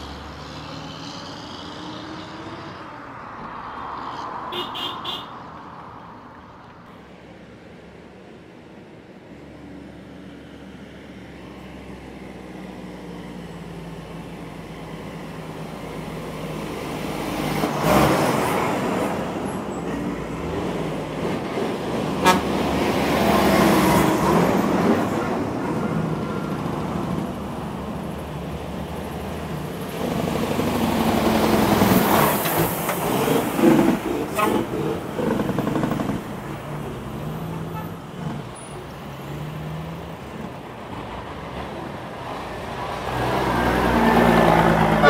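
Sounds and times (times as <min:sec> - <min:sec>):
truck horn toots: 0:04.5 - 0:05.3, 0:22.2 - 0:22.6, 0:37.5 - 0:38.0
truck diesel engine approaching: 0:06.4 - 0:45.0.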